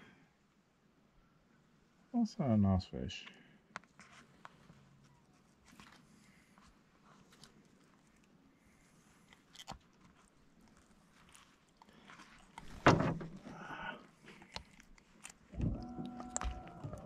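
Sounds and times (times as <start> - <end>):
fish rustling on wet mat: 4.0 - 17.0.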